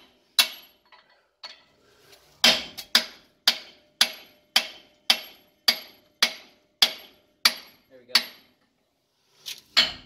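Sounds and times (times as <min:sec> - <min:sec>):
hammer striking a metal chisel: 0:00.0 - 0:00.9, 0:02.4 - 0:08.5, 0:09.8 - 0:10.0.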